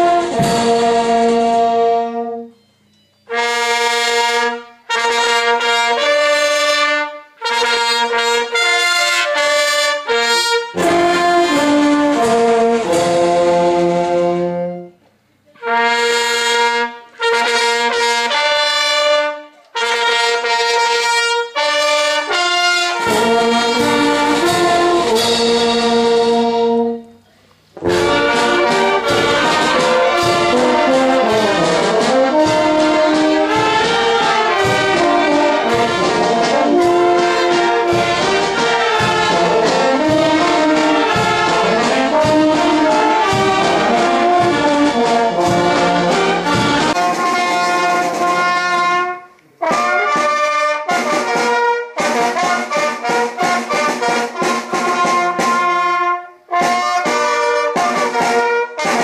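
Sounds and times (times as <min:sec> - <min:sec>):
drum strokes: 0:00.0 - 0:02.2, 0:10.0 - 0:14.6, 0:22.2 - 0:27.0, 0:27.6 - 0:55.8
brass band playing chords: 0:00.0 - 0:02.6, 0:03.2 - 0:59.0.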